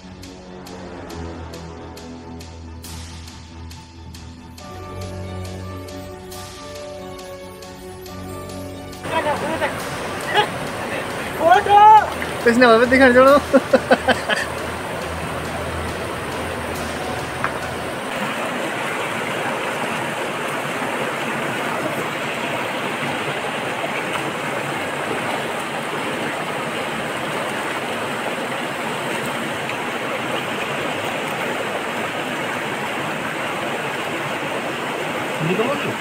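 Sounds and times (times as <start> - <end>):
river rushing over rocks: 9.0 - 36.0.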